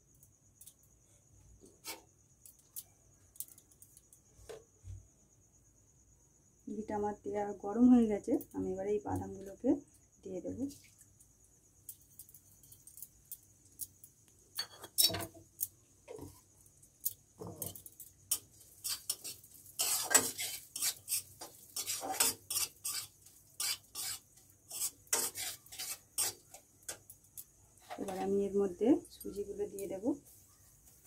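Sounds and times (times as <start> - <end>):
metal spatula scraping a pan: 17.5 - 27.0.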